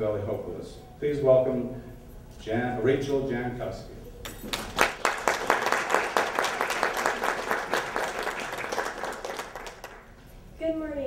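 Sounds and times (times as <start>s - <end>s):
audience applauding: 4.4s - 10.1s.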